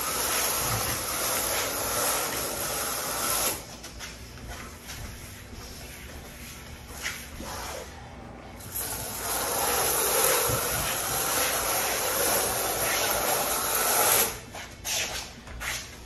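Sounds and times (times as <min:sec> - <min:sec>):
trowel scraping mortar on tile: 0:00.0 - 0:03.7, 0:08.8 - 0:14.4.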